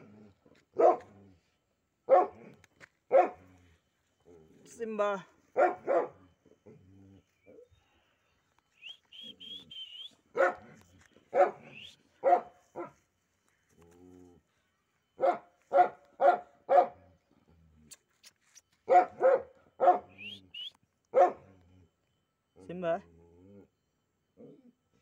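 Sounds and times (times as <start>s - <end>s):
dog barking: 0.8s - 1.1s, 2.1s - 3.5s, 5.6s - 6.2s, 10.3s - 13.0s, 15.2s - 17.1s, 18.9s - 20.3s, 21.1s - 21.5s.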